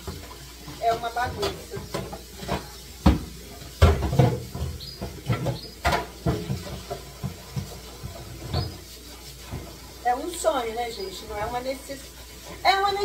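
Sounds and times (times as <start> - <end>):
refrigerator parts knocking and clattering: 0.0 - 8.8.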